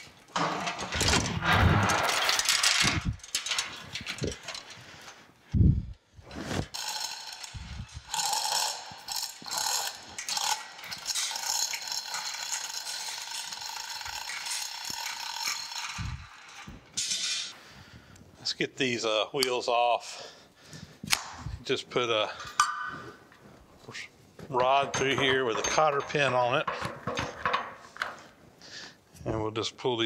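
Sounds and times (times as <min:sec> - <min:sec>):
hoist chain rattling and clicking: 0:00.3 - 0:05.2, 0:06.7 - 0:17.5.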